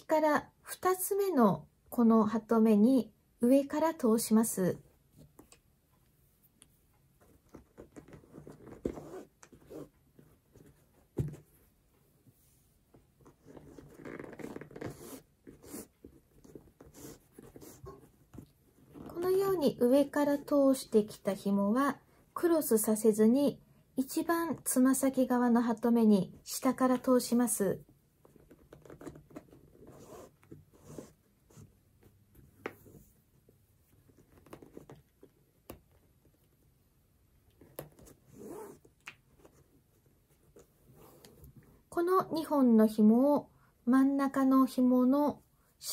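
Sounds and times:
shoelace sliding through eyelets: 38.1s - 38.9s.

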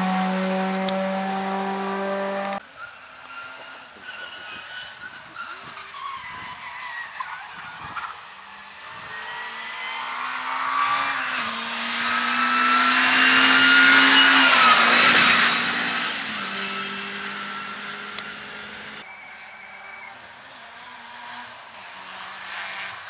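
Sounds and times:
car engine accelerating: 0.0s - 2.6s, 8.4s - 19.0s.

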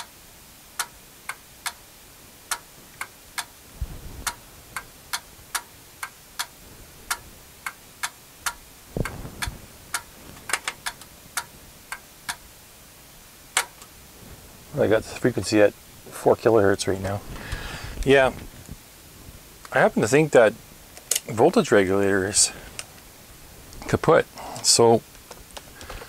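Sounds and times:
sharp clicks: 2.5s - 3.5s, 4.2s - 12.4s, 13.6s - 13.9s
low thuds: 3.8s - 4.4s, 8.8s - 10.9s.

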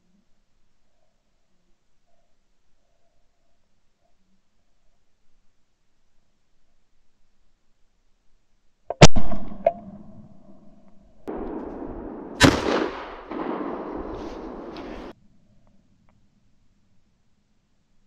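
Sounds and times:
shotgun shots: 9.0s - 9.6s, 11.3s - 15.1s.

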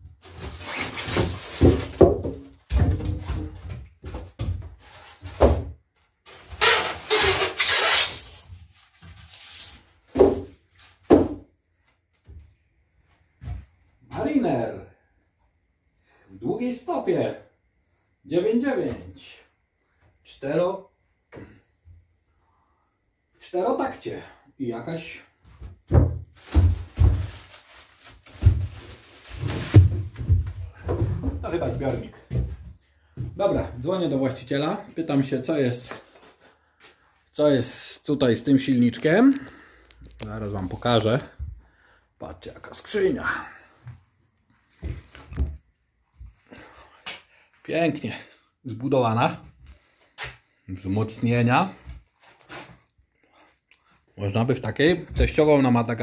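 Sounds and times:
object thumping in wooden crate: 10.1s - 11.4s, 29.5s - 31.4s
plastic wrapping rustling: 26.3s - 31.7s.

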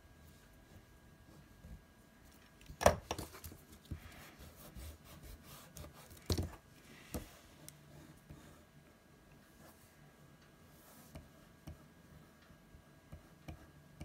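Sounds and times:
eraser rubbing on paper: 4.2s - 6.1s.

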